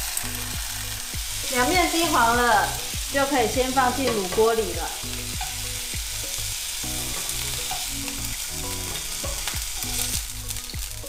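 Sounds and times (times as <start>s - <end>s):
meat sizzling in hot oil: 0.0s - 11.0s.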